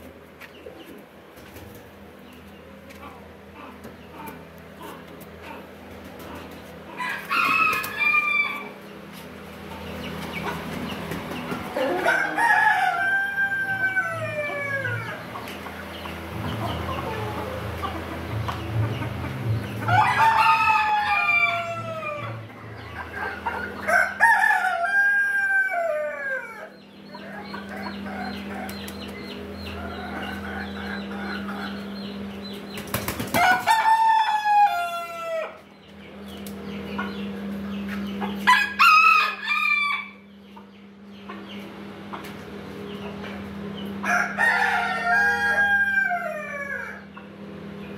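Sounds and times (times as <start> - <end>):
rooster crowing: 6.9 - 8.8, 11.8 - 15.3, 19.8 - 22.5, 23.3 - 28.8, 33.3 - 35.6, 38.4 - 40.3, 44.0 - 47.1.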